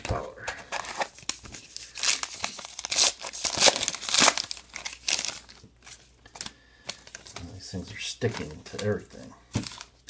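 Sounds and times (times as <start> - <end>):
foil wrapper crinkling and tearing: 0.1 - 7.6.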